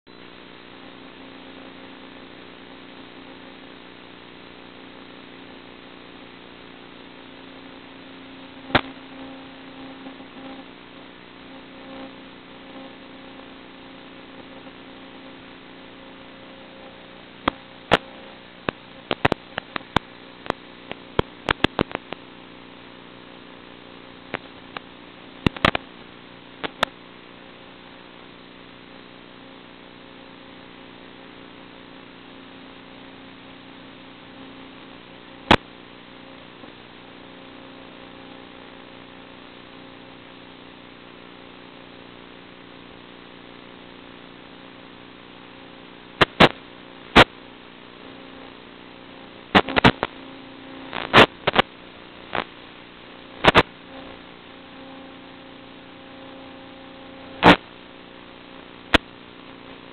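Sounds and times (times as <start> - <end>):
electrical hum: 0.1 - 59.9
sharp clicks and pops: 8.6 - 9.1, 17.4 - 22.3, 24.3 - 25.9, 26.6 - 27.0, 35.5 - 35.7, 46.2 - 46.6, 47.2 - 47.4, 49.5 - 52.5, 53.4 - 54.2, 57.3 - 57.6.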